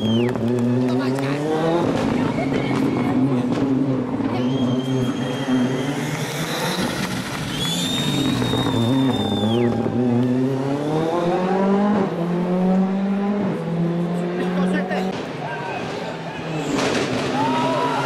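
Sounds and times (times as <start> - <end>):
high whistle: 0.0 - 0.4, 4.3 - 9.9
rally car engine revving: 0.0 - 17.2.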